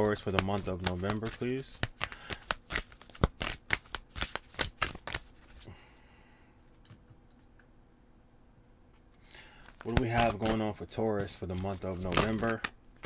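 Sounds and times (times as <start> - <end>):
cards being shuffled: 0.0 - 5.7, 9.6 - 13.0.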